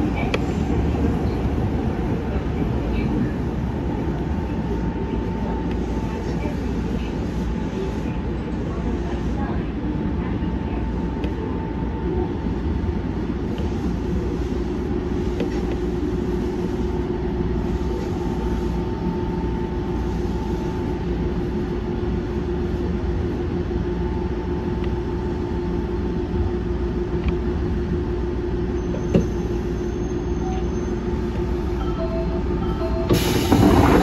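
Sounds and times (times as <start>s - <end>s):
train wheels rumbling on track: 0.0s - 31.8s, 32.4s - 34.0s
loud rush of noise: 33.2s - 34.0s.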